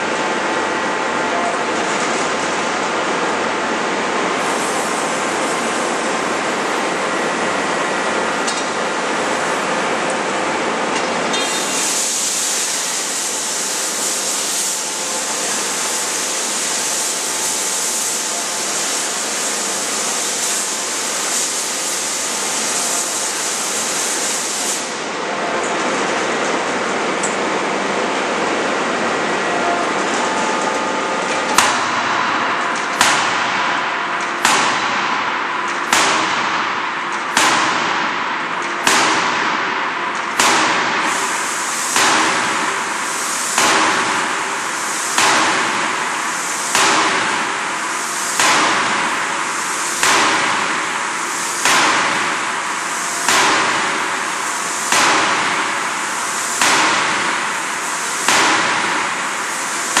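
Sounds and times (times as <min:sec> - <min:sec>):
machinery hum: 0:00.0 - 1:00.0
hiss: 0:11.4 - 0:25.0, 0:40.4 - 1:00.0.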